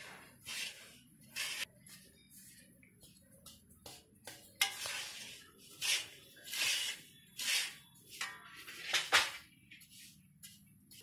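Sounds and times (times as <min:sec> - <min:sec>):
metal spatula scraping a pan: 0:00.0 - 0:01.7, 0:04.5 - 0:09.3.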